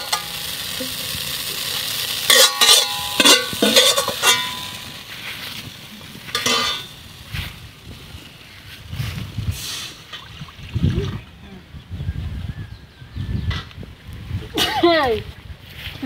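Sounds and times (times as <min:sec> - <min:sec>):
pan sizzling: 0:00.0 - 0:10.1
metal ladle clanking against wok: 0:02.2 - 0:05.0, 0:06.3 - 0:07.0.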